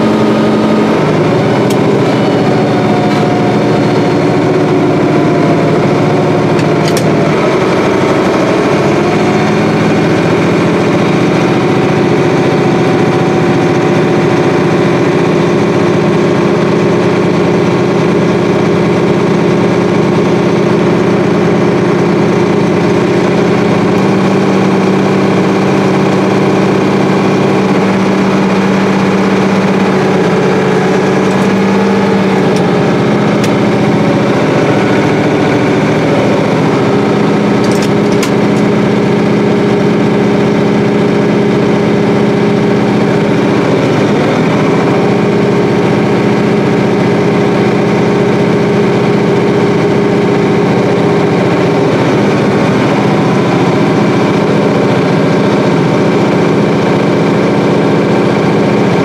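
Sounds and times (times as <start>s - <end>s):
diesel engine running under load: 0.0s - 59.0s.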